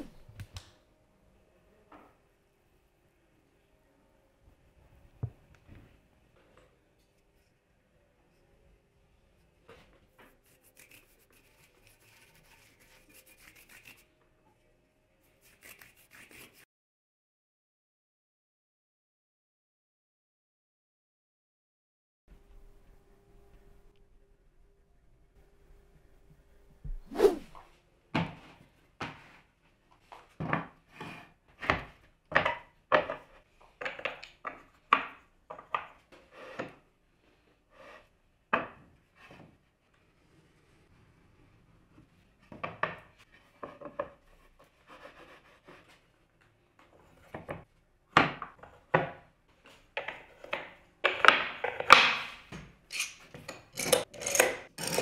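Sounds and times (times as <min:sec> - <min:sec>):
bristle brush rubbing on wood: 0:10.4 - 0:14.0.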